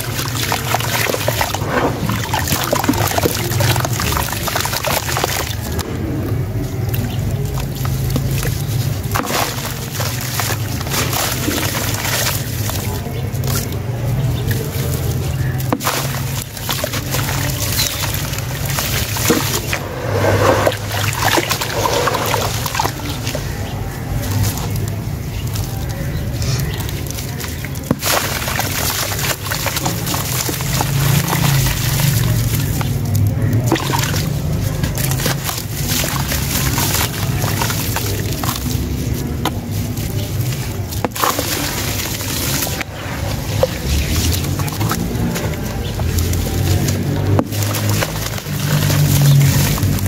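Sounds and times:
hands sloshing in water: 0:00.0 - 0:50.0
mud splashing into water: 0:00.0 - 0:50.0
steady low rumble: 0:18.2 - 0:24.2.

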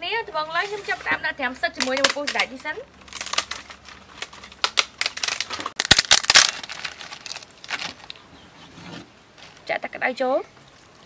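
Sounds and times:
brittle sheets crackling and rustling: 0:00.5 - 0:09.7
crisp clicks: 0:03.1 - 0:08.2.

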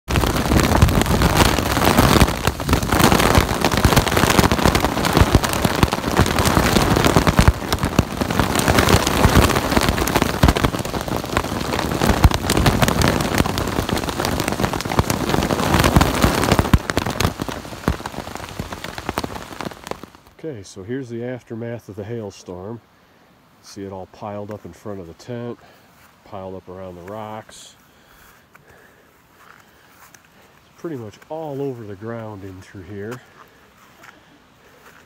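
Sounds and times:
hailstones pelting down: 0:00.1 - 0:20.3.

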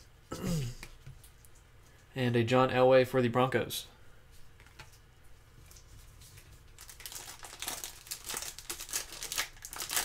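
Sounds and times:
foil wrapper crinkling: 0:05.7 - 0:10.0.

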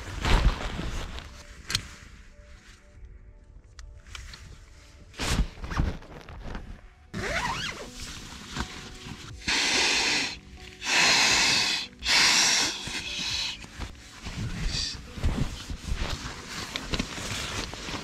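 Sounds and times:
background music: 0:00.0 - 0:18.0
breaths blown into pillow: 0:09.4 - 0:16.1
gear rustling: 0:13.6 - 0:18.0.

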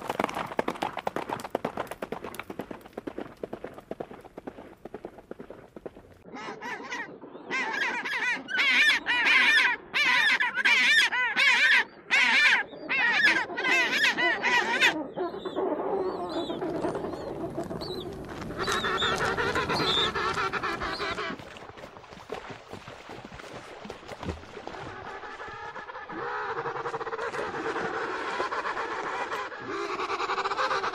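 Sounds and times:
penguin braying: 0:18.6 - 0:21.4.

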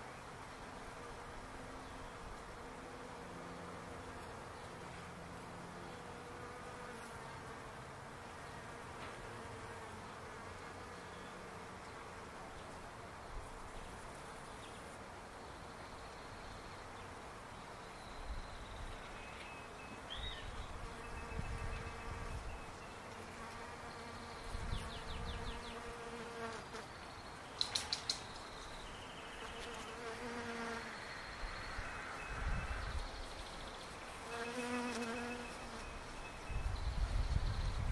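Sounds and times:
bees buzzing: 0:29.4 - 0:31.2, 0:34.1 - 0:36.2.

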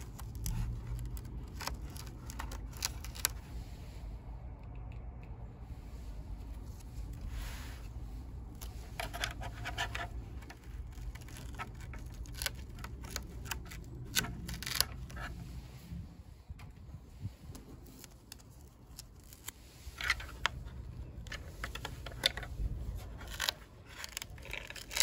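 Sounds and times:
hands clicking and rubbing plastic: 0:00.0 - 0:03.5, 0:04.4 - 0:05.5, 0:08.4 - 0:15.4, 0:17.5 - 0:25.0
steady low rumble: 0:00.0 - 0:25.0.

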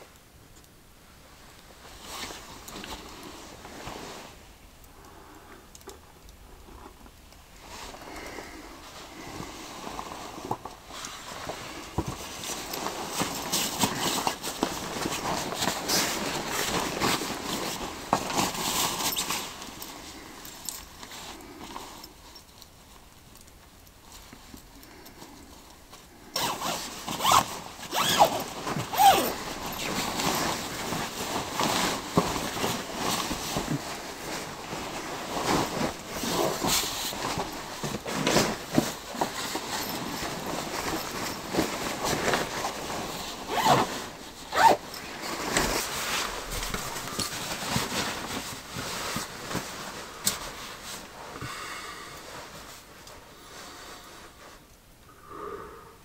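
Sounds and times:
fabric rustling: 0:01.2 - 0:04.6, 0:07.6 - 0:23.1, 0:24.0 - 0:51.4, 0:52.2 - 0:54.7
zipper scraping: 0:26.4 - 0:33.9, 0:34.9 - 0:46.0.

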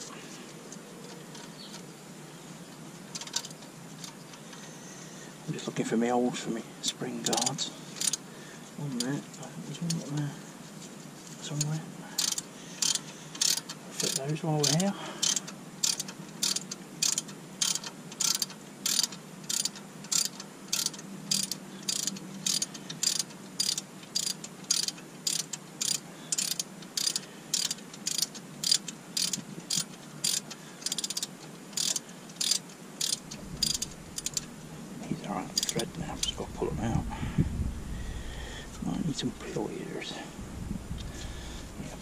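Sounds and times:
hand ratchet clicking: 0:07.2 - 0:08.2, 0:12.2 - 0:34.5, 0:35.5 - 0:36.4.

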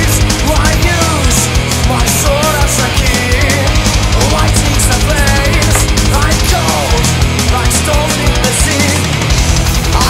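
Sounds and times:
heavy rock music: 0:00.0 - 0:10.0.

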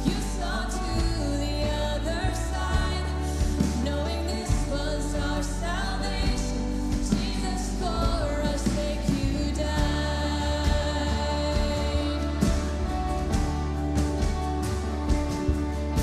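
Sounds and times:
live band playing: 0:00.0 - 0:16.0
woman singing: 0:00.0 - 0:16.0
drum hits: 0:06.2 - 0:16.0.

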